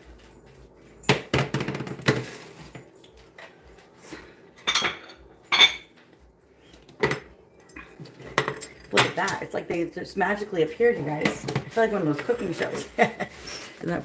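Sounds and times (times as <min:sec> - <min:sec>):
kitchenware knocks: 0:01.1 - 0:02.3.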